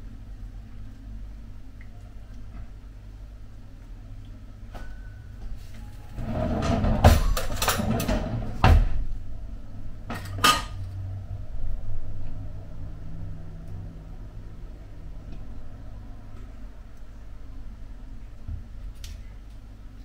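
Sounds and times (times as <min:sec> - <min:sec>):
dishes and cutlery clinking: 0:10.1 - 0:10.8.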